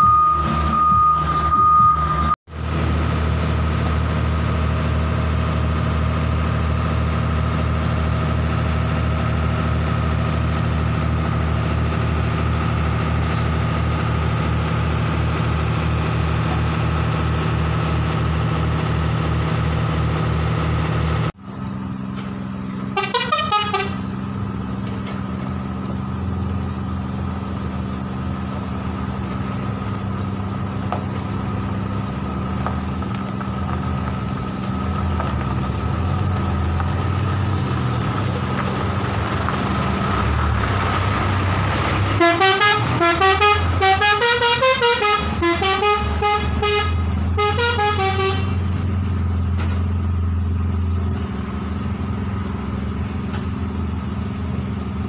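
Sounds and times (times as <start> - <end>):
truck diesel engine running: 0.0 - 55.0
musical horn playing a tune: 23.0 - 24.0, 42.2 - 48.6
short horn toot: 23.0 - 24.0, 42.2 - 48.6.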